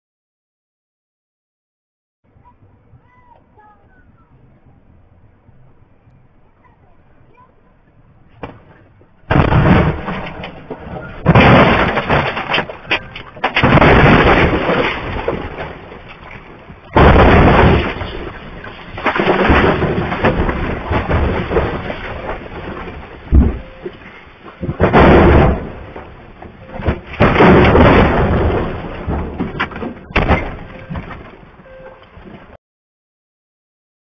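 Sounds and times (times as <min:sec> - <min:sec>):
grinding tumbling noise: 0:08.0 - 0:31.6
loud crash impacts: 0:08.4 - 0:31.4.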